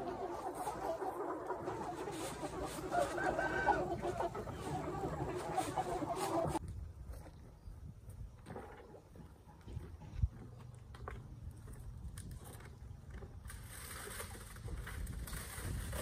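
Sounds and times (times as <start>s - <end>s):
chicken drawn-out call: 0.0s - 6.6s
chickens clucking: 0.0s - 6.6s.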